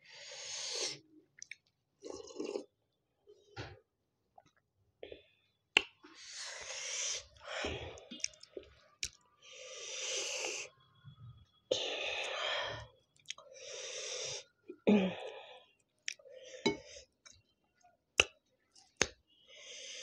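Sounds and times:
chewing and lip smacks: 1.4 - 1.7, 8.1 - 9.2, 13.1 - 13.4
breathy breaths: 11.7 - 17.2.

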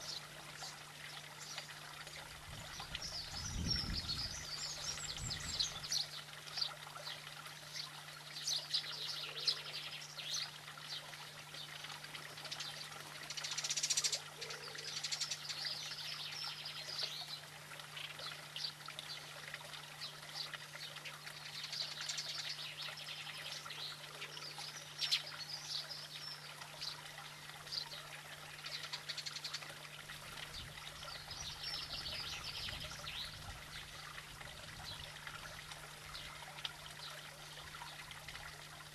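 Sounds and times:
songbirds chirping and singing: 30.5 - 33.9.

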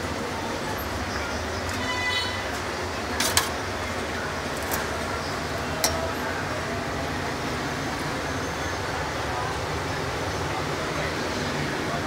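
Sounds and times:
busy street noise: 0.0 - 12.0.

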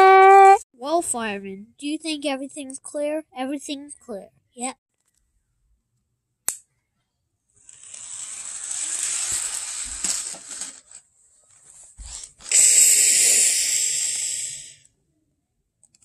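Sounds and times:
steam-like hisses: 12.5 - 14.8.

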